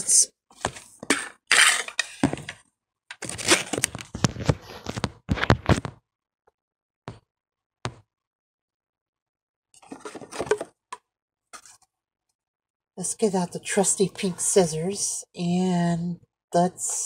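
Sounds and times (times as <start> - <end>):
packaging crackling and rustling: 3.1 - 5.8.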